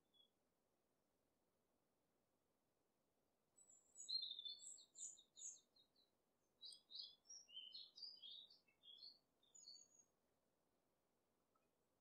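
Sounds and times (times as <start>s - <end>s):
faint bird chirping: 0.0s - 0.3s, 3.6s - 10.2s.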